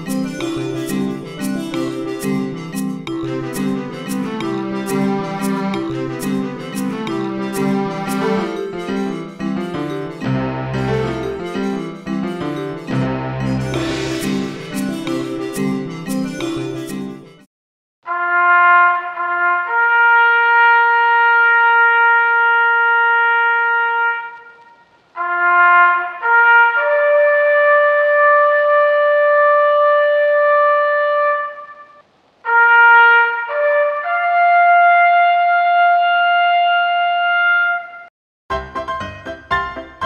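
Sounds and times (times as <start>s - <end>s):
brass rising calls: 3.9s - 9.4s, 13.0s - 16.1s, 18.1s - 37.8s.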